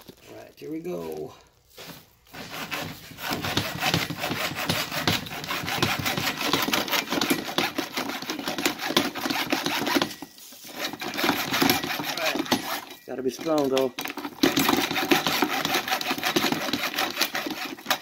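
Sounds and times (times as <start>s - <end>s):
hacksaw cutting metal: 2.3s - 18.0s.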